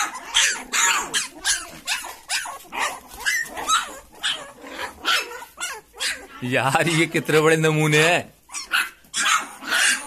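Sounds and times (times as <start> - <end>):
puppies yipping and crying: 0.0 - 10.0.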